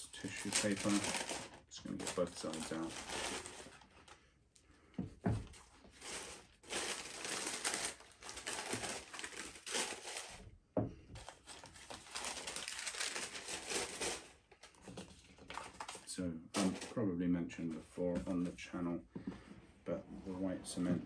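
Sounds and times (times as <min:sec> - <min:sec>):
tissue paper crinkling: 0:00.0 - 0:04.2, 0:05.5 - 0:10.4, 0:11.2 - 0:16.9.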